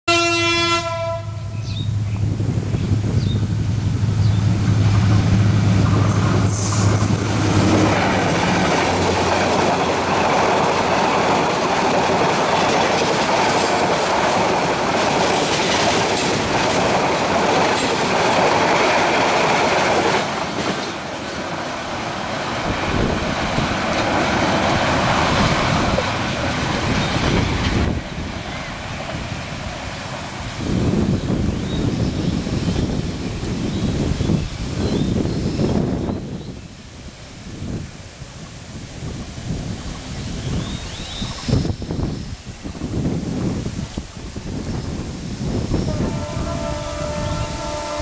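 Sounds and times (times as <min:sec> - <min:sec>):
locomotive engine drone: 0:01.2 - 0:18.2
train wheels clattering: 0:04.2 - 0:29.3.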